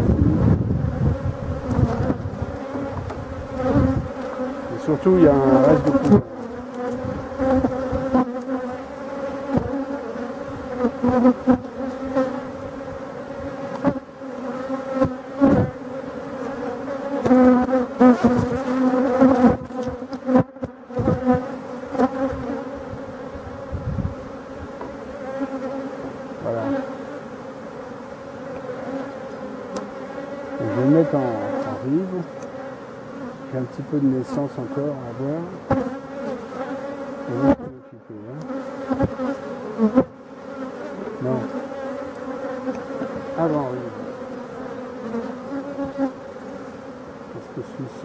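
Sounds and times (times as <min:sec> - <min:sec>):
bee buzzing past: 0:00.0 - 0:48.0
honeybees buzzing: 0:00.0 - 0:48.0.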